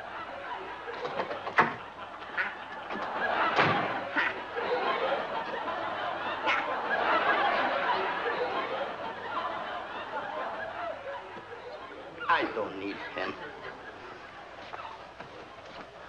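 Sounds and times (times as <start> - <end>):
audience laughter: 0.0 - 16.0
door shutting: 0.9 - 1.9, 2.7 - 4.0.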